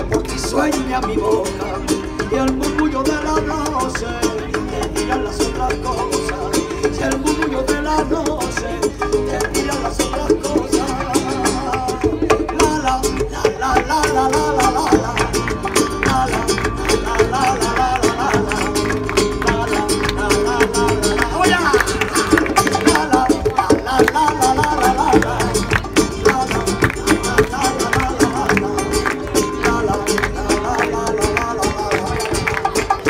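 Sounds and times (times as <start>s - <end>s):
flamenco acoustic guitar: 0.0s - 33.0s.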